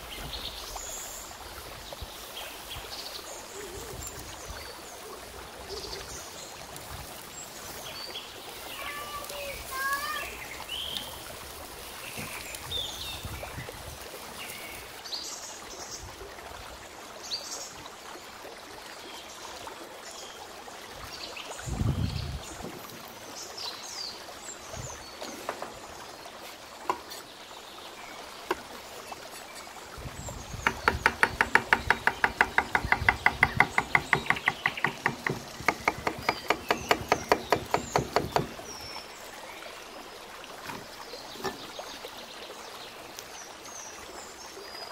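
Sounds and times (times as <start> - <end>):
birds chirping: 21.9 - 39.8
knife chopping on wooden board: 30.7 - 38.6.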